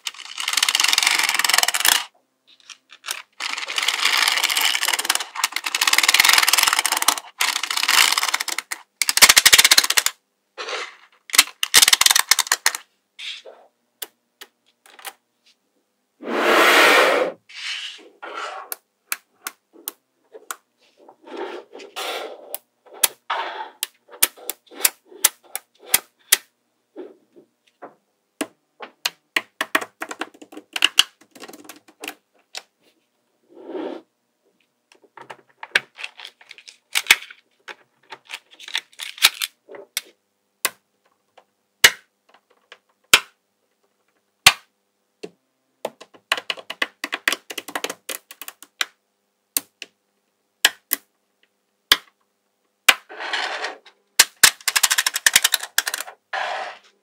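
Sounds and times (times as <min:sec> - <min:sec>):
magnetic balls clicking together: 0:00.0 - 0:02.1, 0:03.0 - 0:10.2, 0:29.0 - 0:32.2, 0:45.9 - 0:49.0, 0:50.6 - 0:51.1, 0:54.2 - 0:56.1
metal balls rattling: 0:54.4 - 0:56.1.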